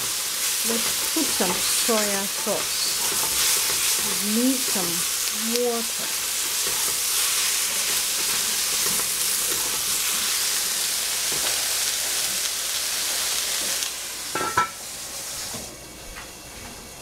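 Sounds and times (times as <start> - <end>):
eggplant sizzling in a pot: 0.0 - 17.0
metal lid clanking: 14.3 - 14.8.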